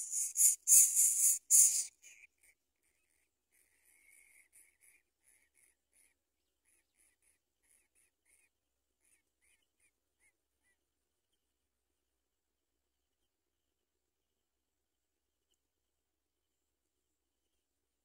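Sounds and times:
nestling begging calls: 0:00.0 - 0:02.1.

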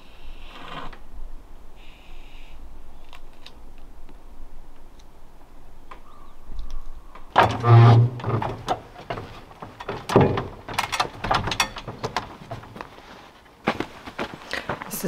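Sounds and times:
knocks and clanks on ladder rungs: 0:07.3 - 0:14.4
metal ladder rattling: 0:07.4 - 0:13.3.

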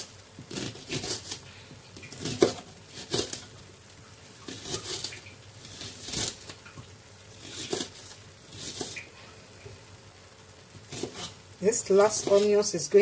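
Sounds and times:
knife slicing through onion: 0:00.5 - 0:01.4, 0:02.0 - 0:03.4, 0:04.5 - 0:06.6, 0:07.4 - 0:09.1, 0:10.8 - 0:11.4, 0:12.1 - 0:12.5.

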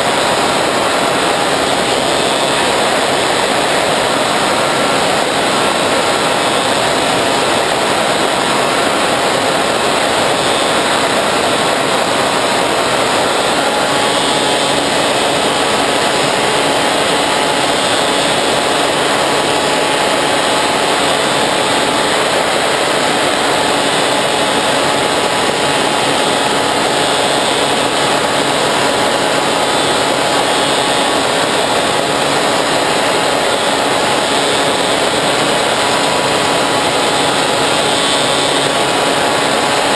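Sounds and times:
model plane motor and propeller: 0:00.0 - 0:39.9
rush of air noise: 0:00.0 - 0:39.9.

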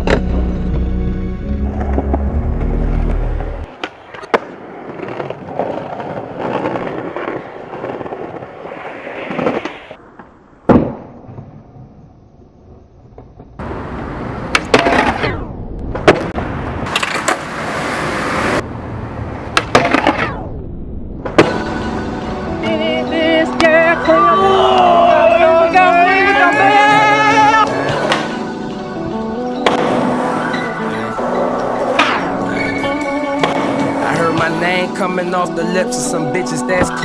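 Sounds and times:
skateboard wheels rolling on concrete: 0:00.0 - 0:20.5, 0:21.1 - 0:37.0
skateboard clacks: 0:03.6 - 0:08.6, 0:14.4 - 0:15.3, 0:19.5 - 0:20.4.

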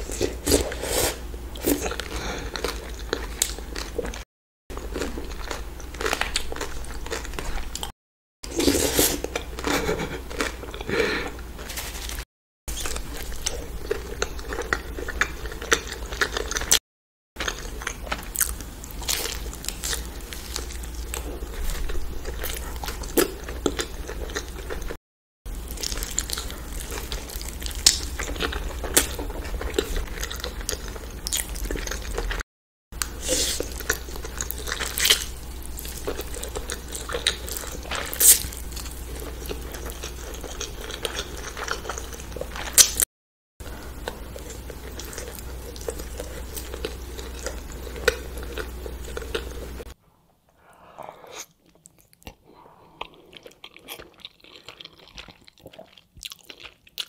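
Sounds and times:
person chewing food: 0:00.0 - 0:07.9, 0:08.5 - 0:16.8, 0:17.4 - 0:32.4, 0:33.0 - 0:50.0, 0:50.6 - 0:57.0
person eating noodles: 0:50.6 - 0:57.0.

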